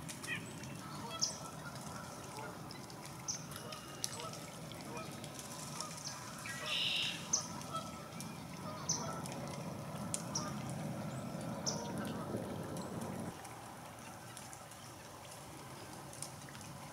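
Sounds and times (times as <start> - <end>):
chickadee calling: 6.4 - 7.6
steady low rumble: 8.2 - 13.3.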